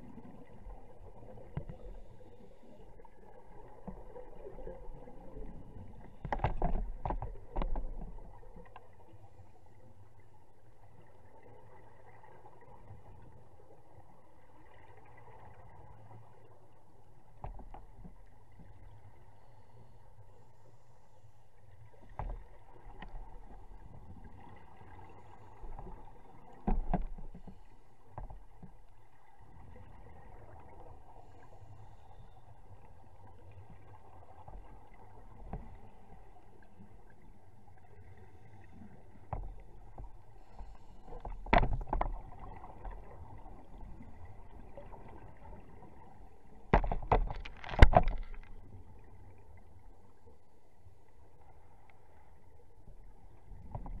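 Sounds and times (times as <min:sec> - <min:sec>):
steady low underwater hum: 0:00.0 - 0:54.0.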